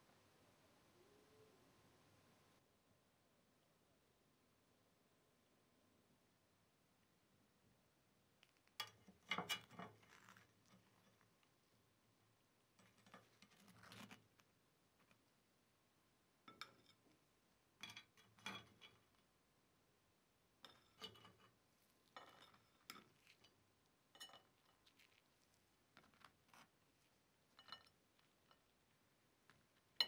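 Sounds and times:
metal tongs clinking on pan: 16.5 - 17.0, 17.8 - 19.1, 22.1 - 24.8, 27.6 - 28.6.

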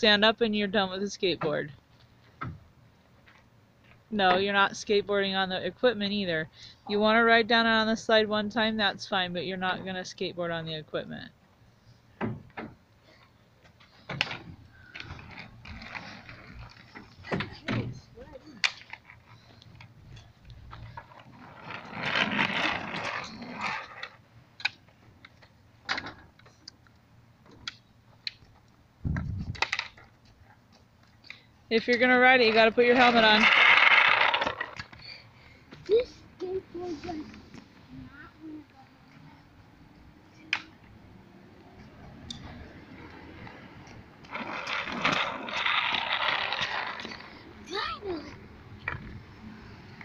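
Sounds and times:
skateboard wheels rolling on concrete: 0.0 - 50.0
skateboard clacking on concrete: 18.5 - 19.9, 31.8 - 35.0, 43.0 - 47.3.

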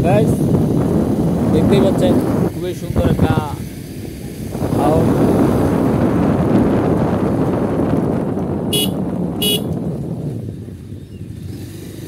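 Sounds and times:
wind and road noise: 0.0 - 12.0
vehicle horn beeps: 8.7 - 9.8.

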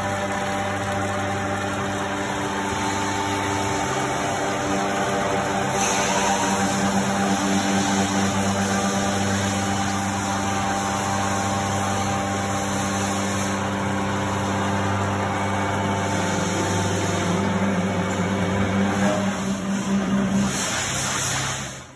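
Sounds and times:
milling machine hum: 0.0 - 21.9
hiss: 5.0 - 13.7, 19.0 - 21.9.

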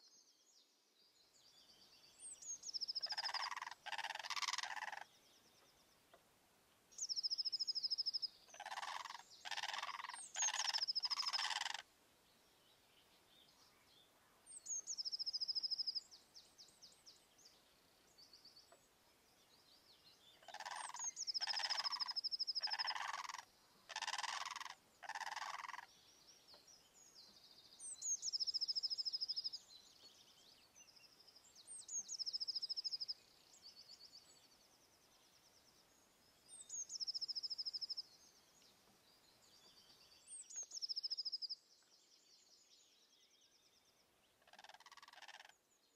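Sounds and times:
small bird trilling phrase: 3.0 - 5.0, 8.5 - 11.8, 20.5 - 25.9, 44.5 - 45.5.

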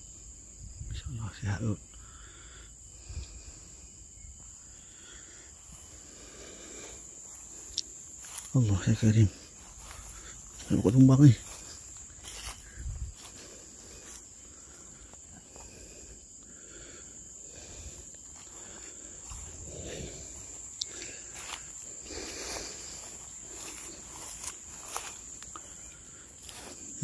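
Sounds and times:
insect chorus: 0.0 - 27.0.

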